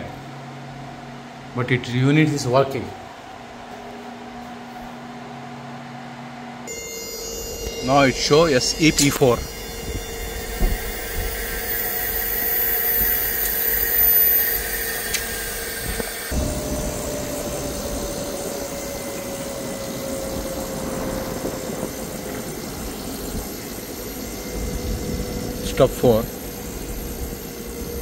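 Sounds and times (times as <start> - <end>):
outdoor unit machine hum: 0.0 - 28.0
whining tone falling in pitch: 3.0 - 28.0.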